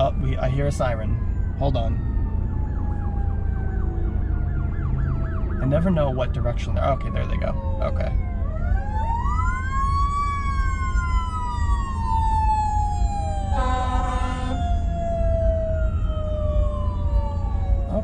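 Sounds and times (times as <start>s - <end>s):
emergency sirens wailing: 0.0s - 18.0s
car horn blast: 13.6s - 14.6s.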